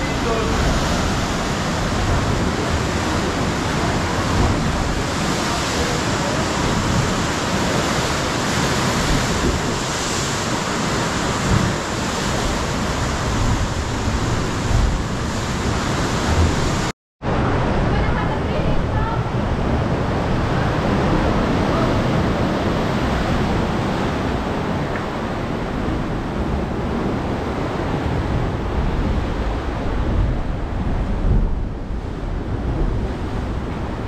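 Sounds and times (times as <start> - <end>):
ocean surf breaking: 0.0 - 34.0
wind on microphone: 0.0 - 34.0.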